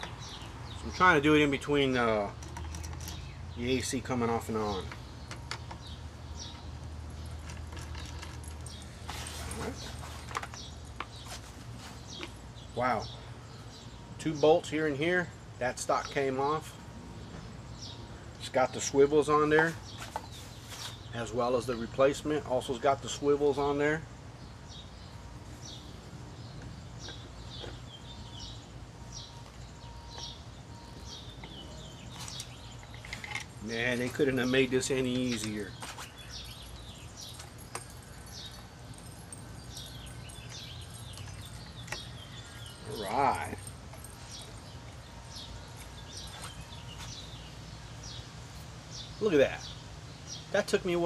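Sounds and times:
small birds chirping: 0:00.0 - 0:51.0
screwdriver and metal parts clicking: 0:31.4 - 0:35.6.

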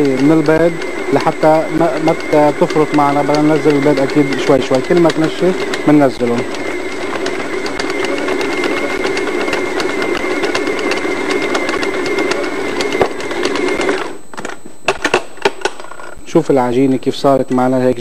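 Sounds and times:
stand mixer kneading dough: 0:00.0 - 0:14.2.

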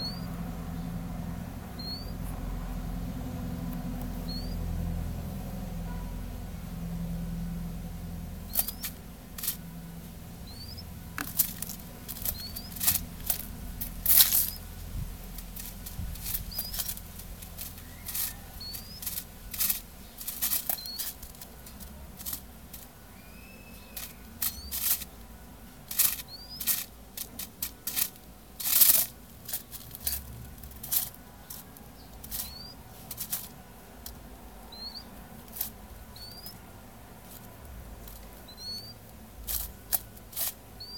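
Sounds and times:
high rising chirps: 0:00.0 - 0:00.4, 0:01.7 - 0:02.2, 0:10.4 - 0:11.0, 0:12.2 - 0:12.9, 0:17.6 - 0:19.2, 0:23.1 - 0:24.8
beak tapping on paper: 0:08.5 - 0:09.6, 0:10.5 - 0:14.7, 0:15.3 - 0:25.1, 0:25.9 - 0:36.6, 0:37.4 - 0:40.9.

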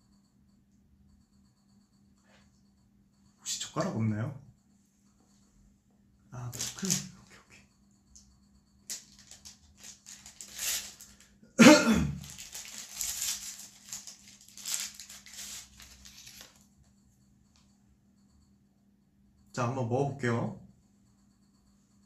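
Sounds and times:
plastic wrapping crinkling: 0:06.5 - 0:07.0, 0:08.9 - 0:11.3, 0:12.1 - 0:16.6.

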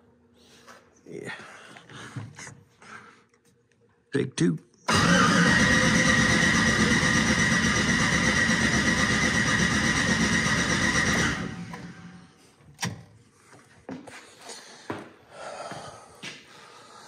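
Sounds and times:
engine starter cranking whine: 0:04.9 - 0:13.0.

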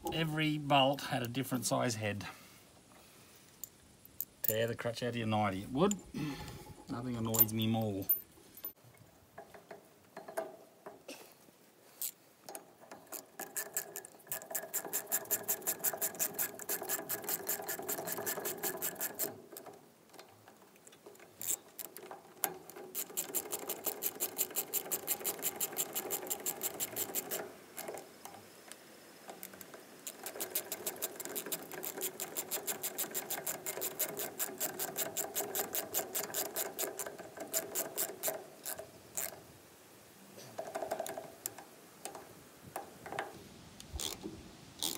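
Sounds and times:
ratchet spanner clicking: 0:12.0 - 0:19.4, 0:21.4 - 0:28.0, 0:29.4 - 0:39.4.

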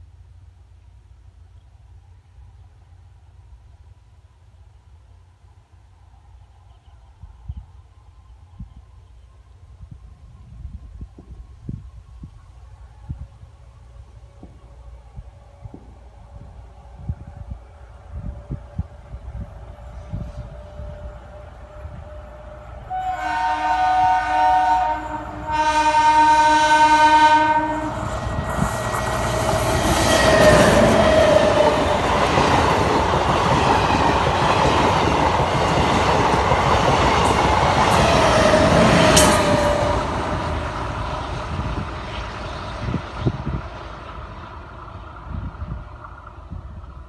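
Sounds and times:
train wheels rumbling on rails: 0:13.0 - 0:47.0
train horn blasts: 0:19.4 - 0:28.8, 0:38.0 - 0:40.4.

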